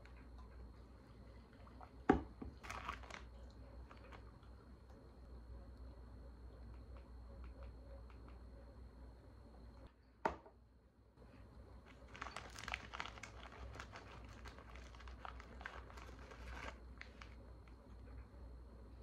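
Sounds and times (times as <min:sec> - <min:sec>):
plastic bag crinkling: 0:02.6 - 0:03.3, 0:11.8 - 0:17.4.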